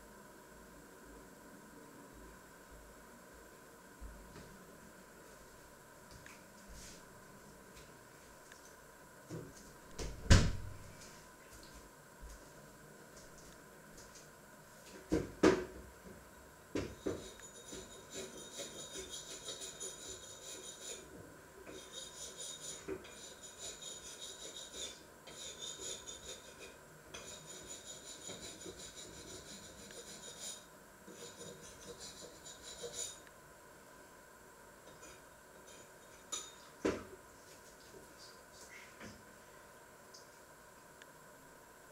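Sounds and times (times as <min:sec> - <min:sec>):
rubbing or scraping strokes: 0:21.7 - 0:33.2.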